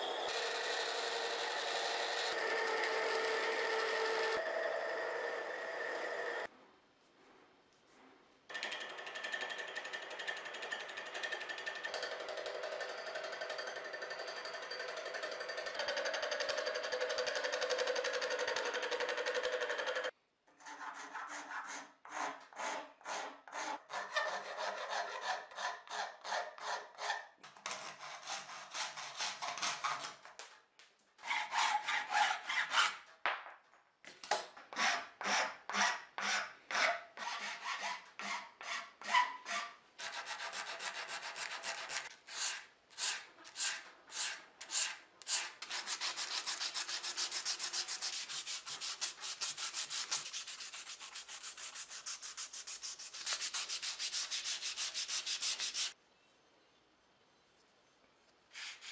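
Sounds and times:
wood scraping on a lathe: 0.1 - 6.5
filing and sanding wood by hand: 15.8 - 30.2, 31.2 - 33.0, 34.8 - 56.0, 58.5 - 58.9.

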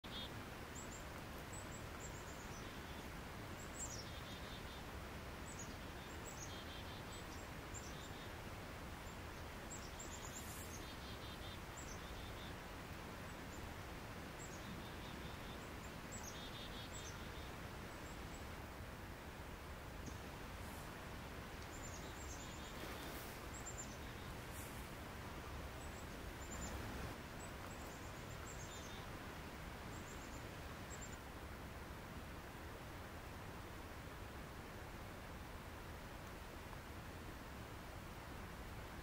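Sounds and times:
small birds chirping and trilling: 0.0 - 18.6, 20.0 - 20.9, 21.6 - 31.3
steady outdoor hiss: 0.0 - 39.0.

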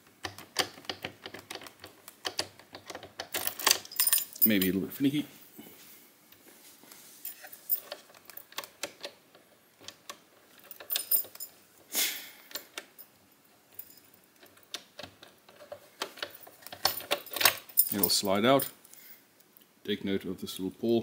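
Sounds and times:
key rattling in a lock: 0.2 - 4.8, 7.3 - 9.2, 9.8 - 11.6, 12.5 - 18.2.

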